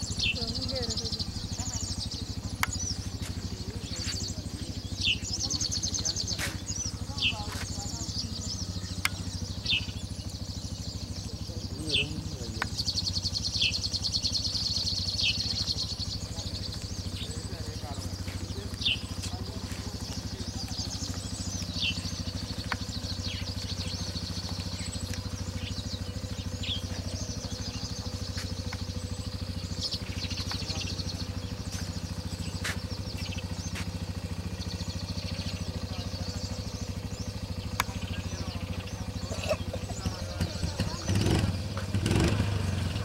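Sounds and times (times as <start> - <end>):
birds chirping: 0.0 - 43.0
small engine idling: 0.0 - 43.0
sharp clicks: 2.5 - 3.0, 8.9 - 9.4, 22.4 - 23.0.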